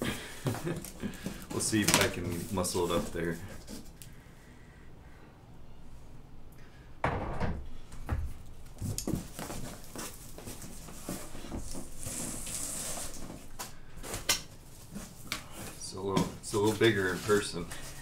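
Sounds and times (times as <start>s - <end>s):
cardboard flaps scraping and rustling: 9.1s - 13.5s, 14.1s - 18.0s.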